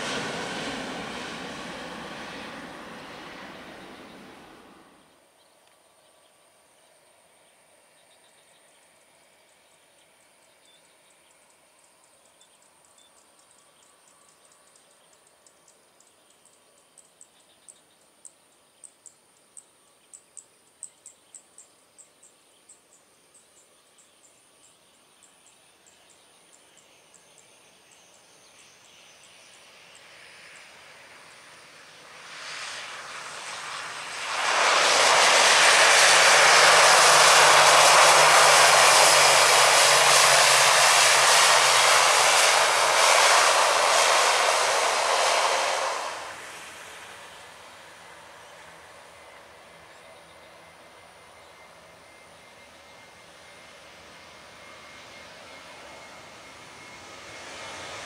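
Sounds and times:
turboprop airliner landing: 0.0 - 5.2, 27.1 - 58.0.

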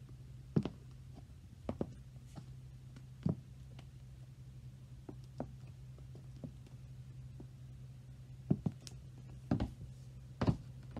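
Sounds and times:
steady low hum: 0.0 - 10.9
high heels tapping on hard floor: 8.5 - 8.8, 9.5 - 9.8, 10.4 - 10.7.

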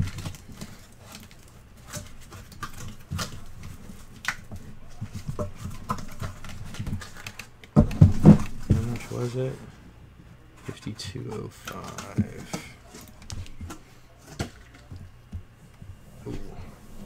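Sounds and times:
cardboard taps and scrapes: 0.0 - 9.2
knock on cardboard box: 7.8 - 9.0.

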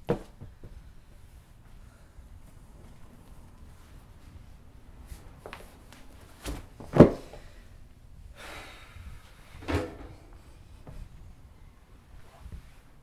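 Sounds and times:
heavy exhale: 7.2 - 9.6.

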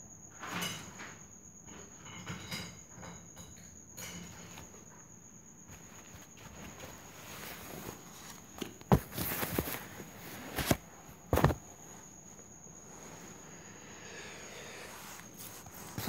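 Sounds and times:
faint high whine: 4.7 - 16.0
paper rustling: 5.7 - 11.7.

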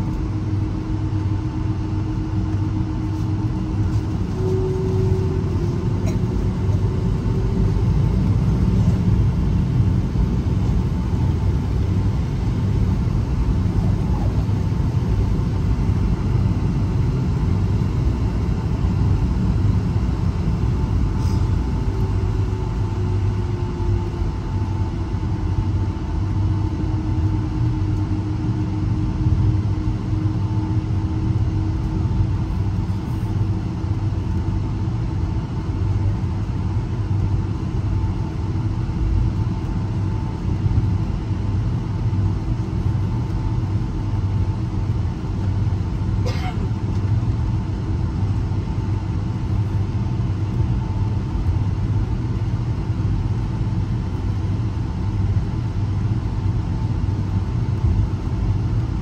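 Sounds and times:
jet engine and airflow rumble: 0.0 - 59.0
lower engine tone: 0.0 - 59.0
thin engine whine: 2.1 - 25.0.

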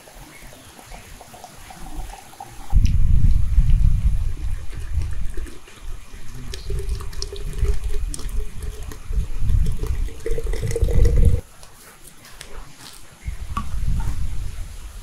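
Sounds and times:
liquid pouring into bottle: 4.3 - 11.4.

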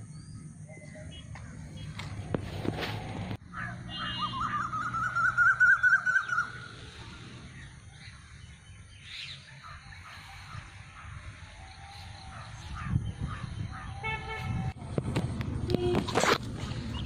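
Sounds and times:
bird warbling call: 3.6 - 6.9.

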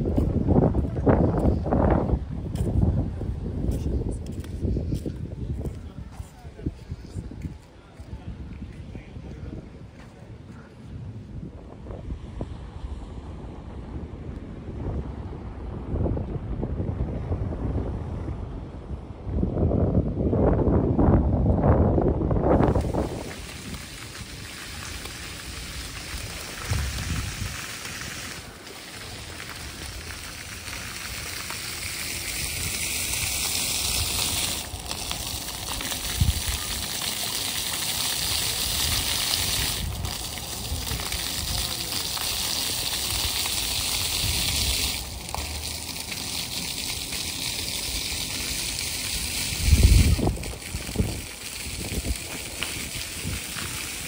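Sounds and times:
fountain water jets splashing on paving: 0.0 - 10.5, 22.4 - 54.0.

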